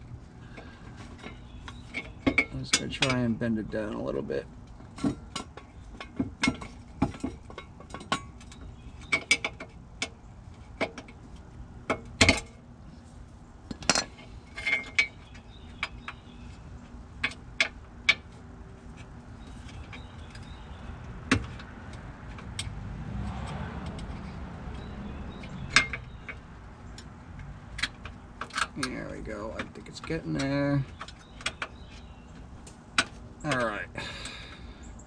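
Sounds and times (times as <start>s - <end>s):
metallic clinks and knocks: 1.0s - 3.3s, 19.0s - 33.8s.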